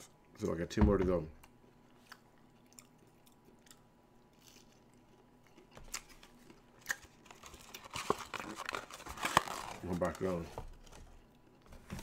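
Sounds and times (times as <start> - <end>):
faint chewing: 1.4 - 8.6.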